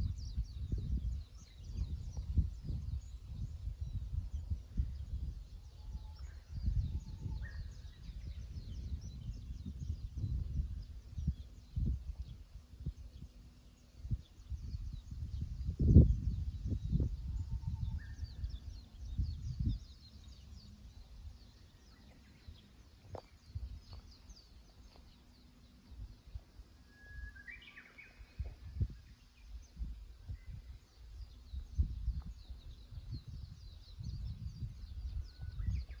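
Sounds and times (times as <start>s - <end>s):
small birds chirping: 0.0s - 36.0s
wind gusts on microphone: 0.0s - 36.0s
whistled call rising in steps: 26.8s - 28.4s.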